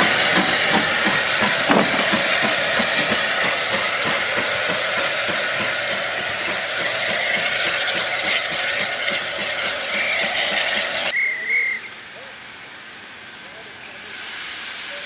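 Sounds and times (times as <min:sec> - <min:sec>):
steam locomotive hissing: 0:00.0 - 0:15.0
high wavering whistle toot: 0:11.1 - 0:12.0.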